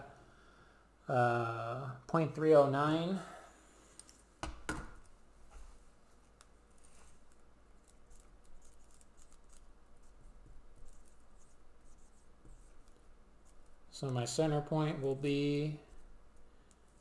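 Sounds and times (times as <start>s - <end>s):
pen scratching on paper: 7.8s - 13.8s.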